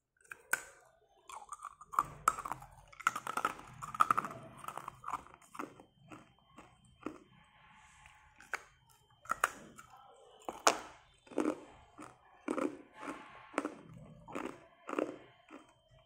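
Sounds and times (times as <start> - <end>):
ice crunched between teeth: 0.3 - 7.2, 10.5 - 15.8.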